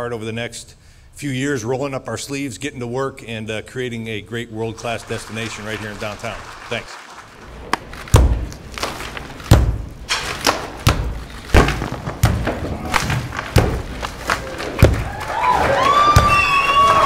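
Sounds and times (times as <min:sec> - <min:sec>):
sledgehammer striking brick wall: 0:08.1 - 0:15.2.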